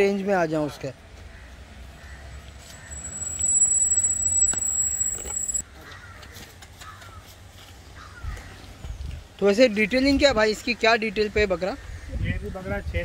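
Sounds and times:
steady high whine: 0:02.2 - 0:05.6.

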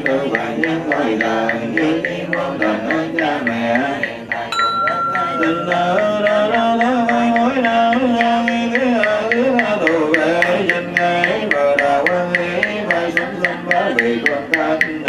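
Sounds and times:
monks chanting: 0:00.0 - 0:15.0
bell ringing: 0:04.5 - 0:07.2.

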